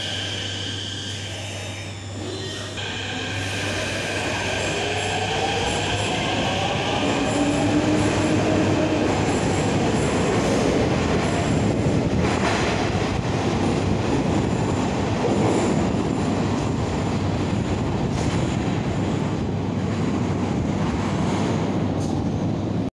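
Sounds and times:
train motor whine: 0.0s - 9.0s
train wheels rumbling on rail: 2.8s - 22.9s.

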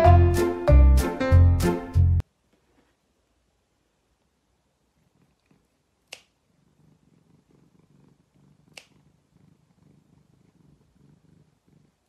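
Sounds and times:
cat purring: 4.2s - 12.0s.

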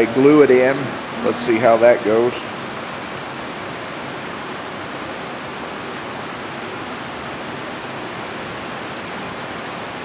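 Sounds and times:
heavy rain on a roof: 2.4s - 10.0s.

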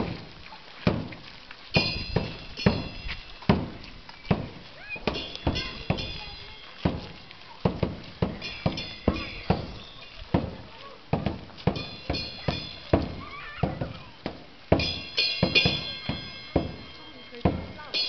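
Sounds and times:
drum beating: 0.0s - 18.0s
cymbals clashing: 1.8s - 3.8s, 5.1s - 7.2s, 8.3s - 10.6s, 11.3s - 14.1s, 14.7s - 18.0s.

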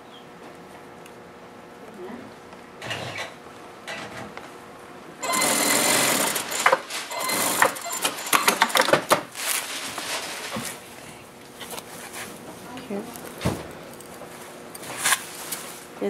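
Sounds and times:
sewing machine stitching: 5.2s - 9.2s.

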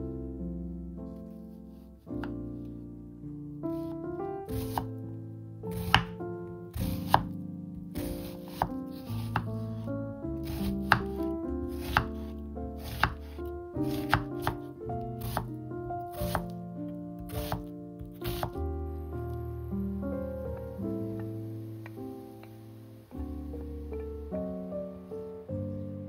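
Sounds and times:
background music: 0.0s - 26.0s
knife chopping on cutting board: 4.6s - 4.9s, 5.7s - 6.2s, 6.8s - 7.3s, 8.0s - 9.5s, 10.4s - 15.5s, 16.2s - 16.5s, 17.2s - 18.6s.

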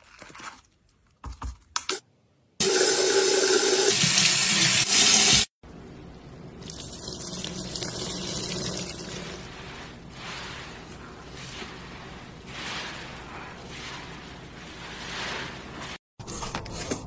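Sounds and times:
sponge squeezed in foamy water: 7.8s - 16.0s.

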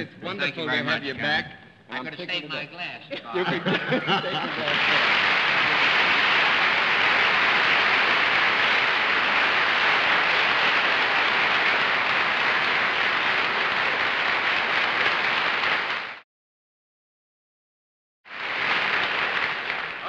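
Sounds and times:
audience applauding: 3.4s - 16.2s, 18.3s - 20.0s.

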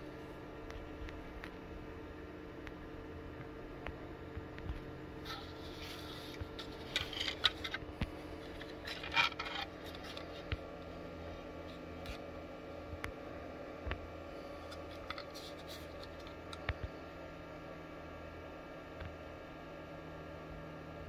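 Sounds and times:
faint steady hum: 0.0s - 21.0s
plastic parts clicking and rubbing: 5.3s - 10.6s, 14.7s - 16.7s.

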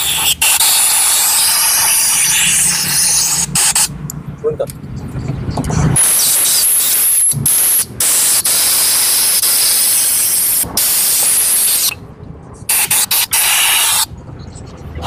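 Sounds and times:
compressed air blow gun hissing: 12.7s - 14.1s.

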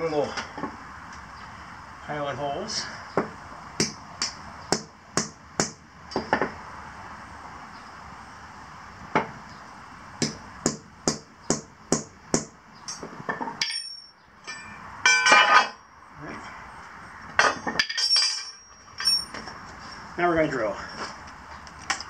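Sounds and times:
light metallic clinks: 17.4s - 19.5s.

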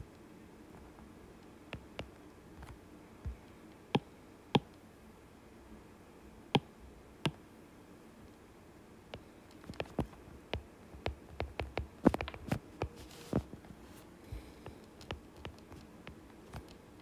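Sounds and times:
stylus tapping glass screen: 9.8s - 13.0s.

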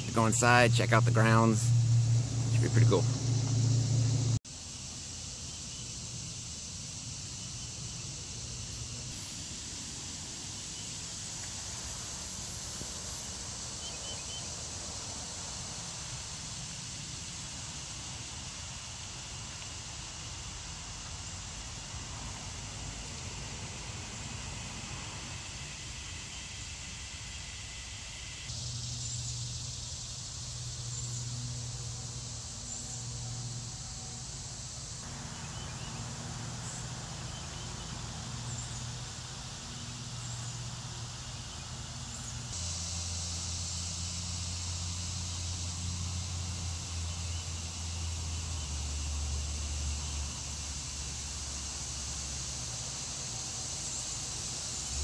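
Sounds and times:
low rumble: 0.0s - 4.4s
insects droning: 0.0s - 55.0s.

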